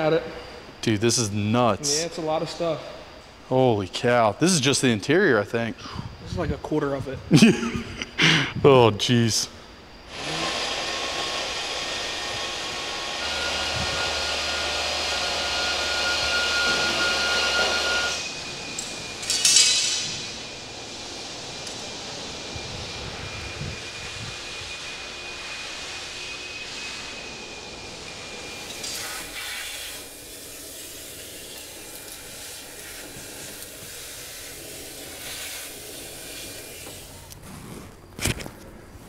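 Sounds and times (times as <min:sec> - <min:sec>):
thin high whine: 0:00.0 - 0:39.0
rushing hiss of air: 0:10.1 - 0:37.8.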